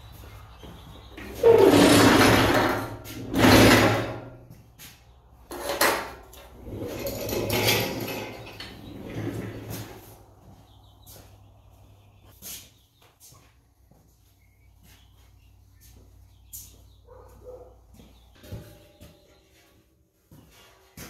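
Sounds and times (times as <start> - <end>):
vise scraping on steel: 1.4 - 4.3, 5.5 - 9.9.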